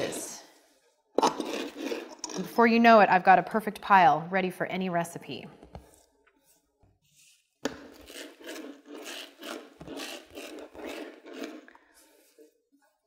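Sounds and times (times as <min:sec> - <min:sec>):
herb mincer rasping on cutting board: 0:07.7 - 0:11.6.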